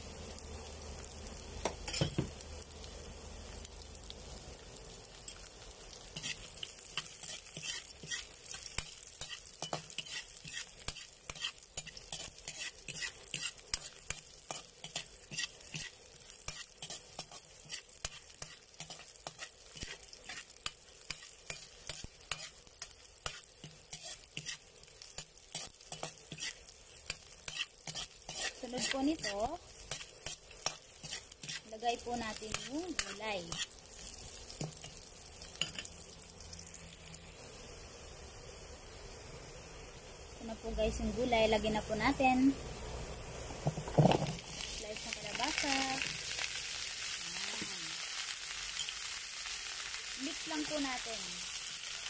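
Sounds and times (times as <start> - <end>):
onion and garlic sizzling in oil: 0.0 - 52.0
metal spatula scraping wok: 1.8 - 2.2, 6.0 - 36.0.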